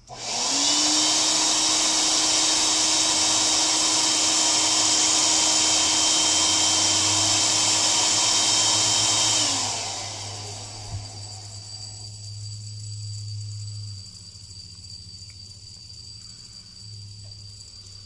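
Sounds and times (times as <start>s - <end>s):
air pump motor humming: 0.0s - 12.8s.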